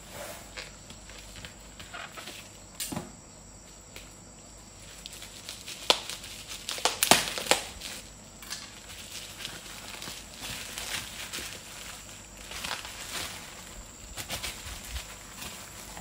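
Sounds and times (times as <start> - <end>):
bubble wrap crinkling: 4.0 - 16.0
knife cutting bubble wrap: 5.4 - 11.8.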